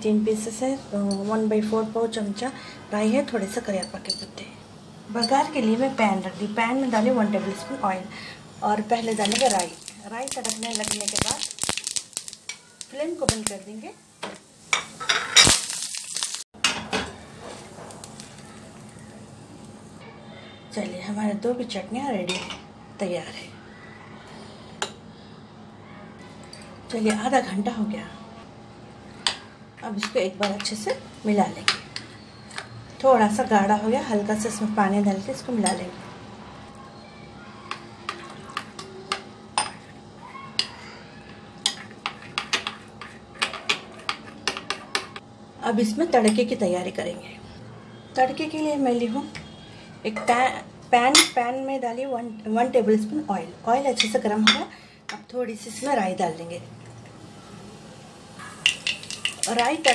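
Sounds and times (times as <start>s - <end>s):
spices sizzling in hot oil: 8.7s - 20.0s, 55.2s - 59.9s
metal pan and spoon clanking: 14.3s - 18.9s, 58.4s - 59.9s.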